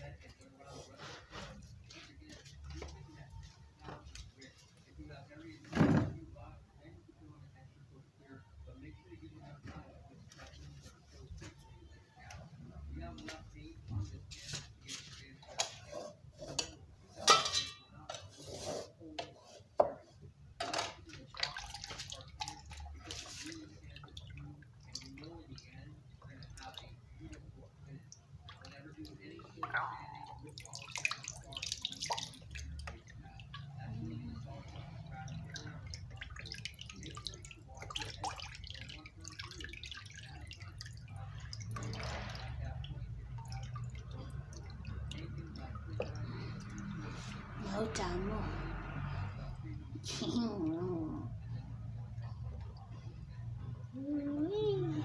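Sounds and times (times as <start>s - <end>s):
knife clanking against metal pot: 16.5s - 18.2s
water sloshing in basin: 20.7s - 49.7s.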